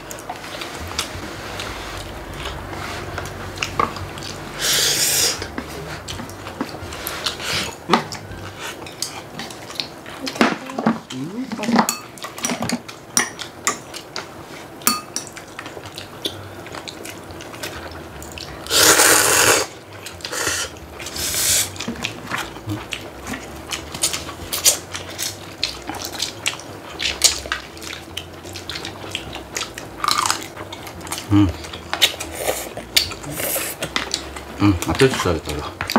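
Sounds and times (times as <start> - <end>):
noodles slurped: 18.7 - 21.8.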